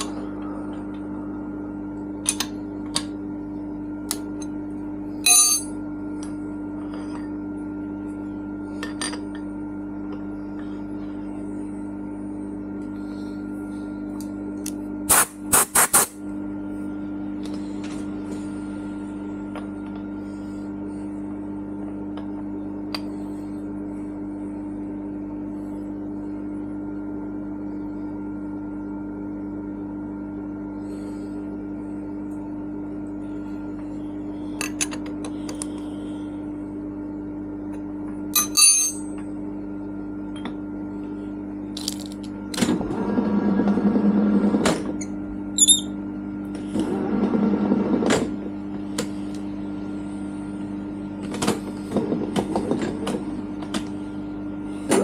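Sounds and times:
steady electrical hum: 0:00.0 - 0:55.0
ringing metal clink: 0:38.4 - 0:39.1.

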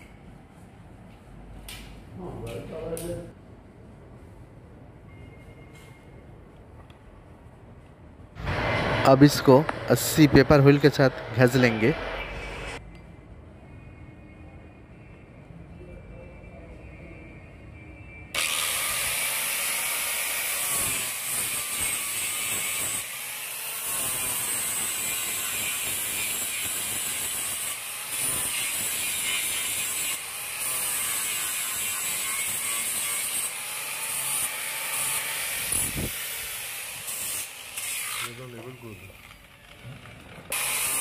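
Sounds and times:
angle grinder grinding metal: 0:18.4 - 0:39.7, 0:40.5 - 0:41.0.

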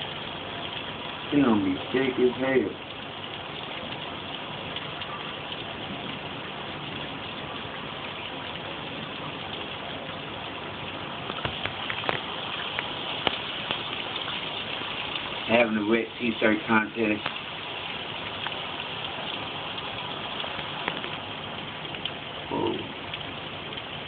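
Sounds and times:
heavy rain: 0:00.0 - 0:24.0
drops ticking on a surface: 0:11.2 - 0:15.5, 0:17.0 - 0:24.0.

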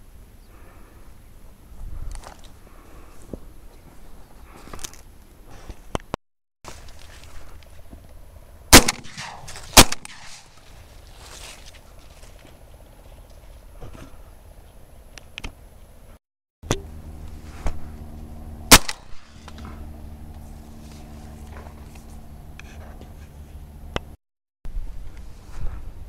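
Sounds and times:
outdoor background noise: 0:00.0 - 0:26.0
shotgun shot: 0:08.7 - 0:10.5, 0:18.7 - 0:19.4.

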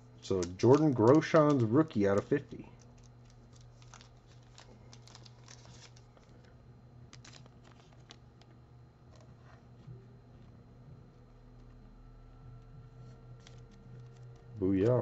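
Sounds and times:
low steady hum: 0:00.0 - 0:15.0
cards and plastic sleeve rustling: 0:00.2 - 0:09.8, 0:13.0 - 0:15.0.

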